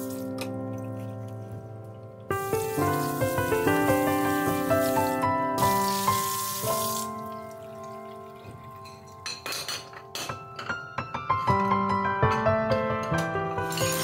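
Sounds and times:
kitchen tap running: 0:00.0 - 0:00.5, 0:02.3 - 0:09.4, 0:13.6 - 0:14.0
instrumental background music: 0:00.0 - 0:14.0
ceramic dishes clinking: 0:08.8 - 0:10.7.

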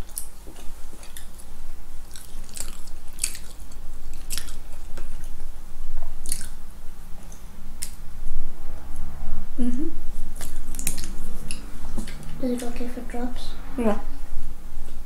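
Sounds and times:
chewing soft doughnut: 0:00.0 - 0:05.4, 0:06.0 - 0:06.6
wet mouth clicks and smacks: 0:06.2 - 0:06.6, 0:10.4 - 0:12.3.

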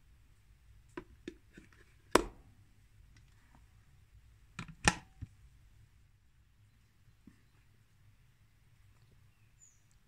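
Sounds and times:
rice cooker lid clicks: 0:04.6 - 0:05.1.

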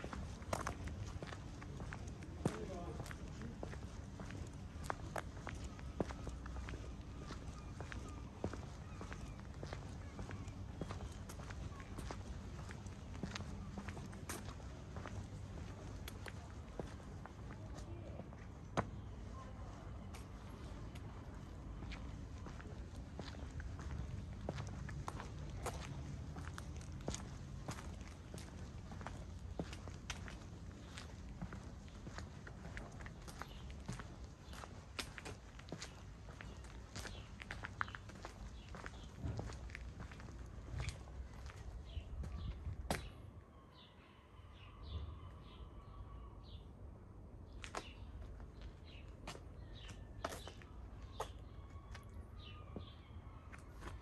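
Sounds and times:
small birds chirping: 0:00.0 - 0:46.7, 0:47.5 - 0:54.0
low street rumble: 0:00.0 - 0:54.0
footsteps walking: 0:20.1 - 0:43.1.

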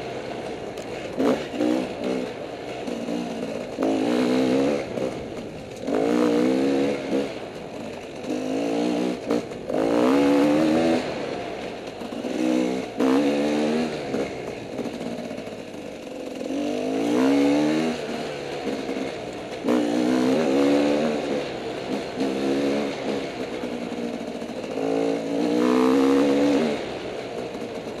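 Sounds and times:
motorcycle engine revving: 0:00.0 - 0:28.0.

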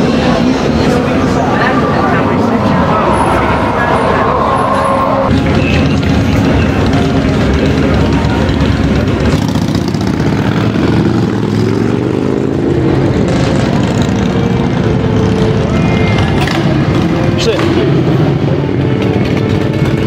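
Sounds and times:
motorcycle accelerating: 0:00.0 - 0:20.0
motorcycles passing: 0:00.0 - 0:20.0.

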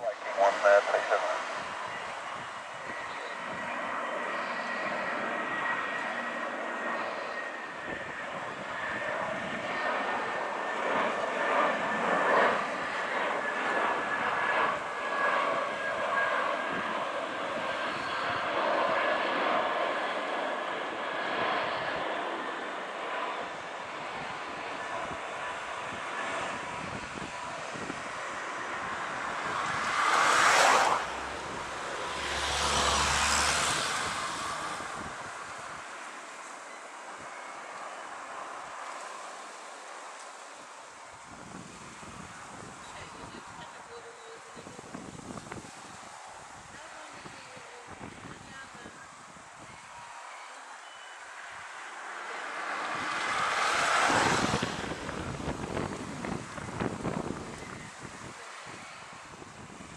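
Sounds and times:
jet engines rushing and whining: 0:00.0 - 0:59.9
gusty wind on microphone: 0:00.3 - 0:06.0, 0:07.6 - 0:13.0, 0:13.8 - 0:19.5, 0:23.1 - 0:36.0, 0:41.1 - 0:50.0, 0:52.8 - 0:59.9.

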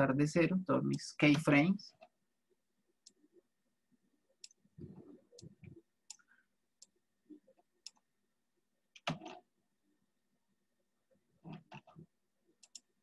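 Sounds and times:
computer mouse clicks: 0:04.4 - 0:04.6, 0:11.5 - 0:12.9.

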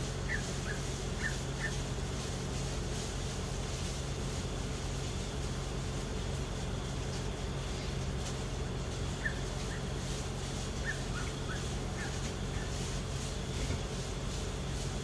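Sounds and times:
distant city traffic hum: 0:00.0 - 0:15.0
small animal chirps: 0:00.2 - 0:01.8, 0:09.2 - 0:09.9, 0:10.8 - 0:12.8.

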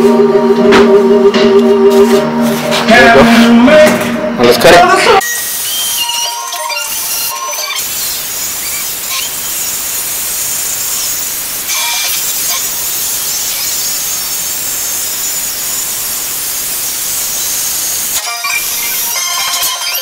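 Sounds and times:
angle grinder cutting steel: 0:05.2 - 0:20.0
welding arc sizzling: 0:05.2 - 0:20.0.

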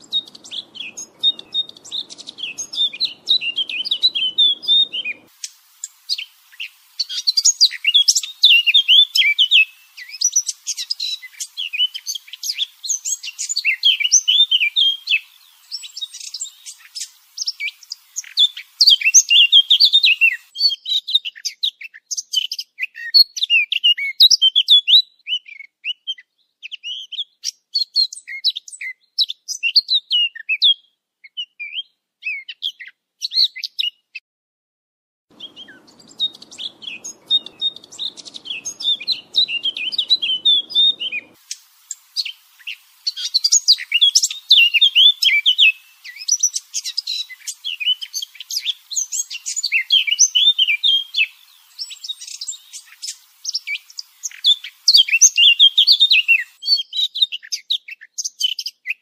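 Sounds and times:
bird chirping and warbling: 0:00.0 - 0:20.7, 0:35.3 - 0:56.8.

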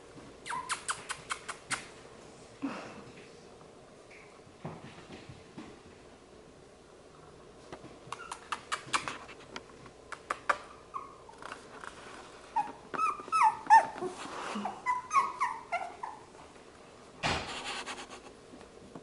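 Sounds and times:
puppies yipping and whining: 0:10.7 - 0:11.6, 0:12.5 - 0:16.4.

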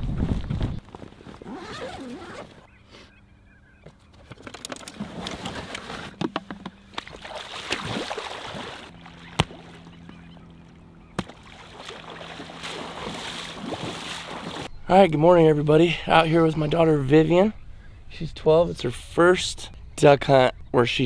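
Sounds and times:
waders sloshing through water: 0:06.8 - 0:14.7.

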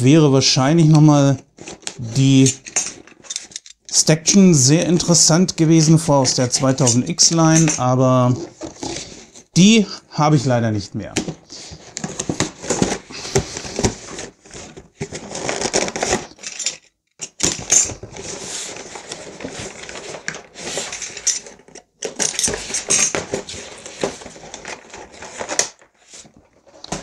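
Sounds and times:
cardboard rustling and tearing: 0:11.3 - 0:16.4, 0:17.5 - 0:27.0.

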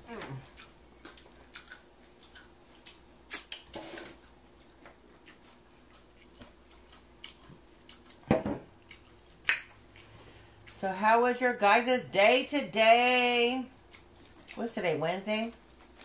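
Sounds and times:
bottle knocking on table: 0:08.3 - 0:08.6.

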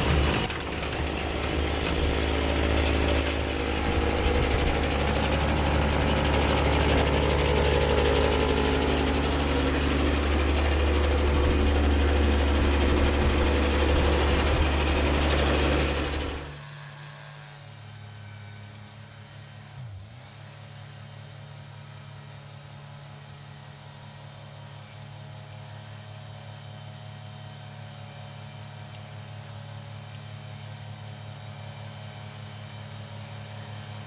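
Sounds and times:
snowblower throwing snow: 0:00.0 - 0:16.7
tractor diesel engine running: 0:00.0 - 0:18.8
distant engine hum: 0:00.0 - 0:19.9.

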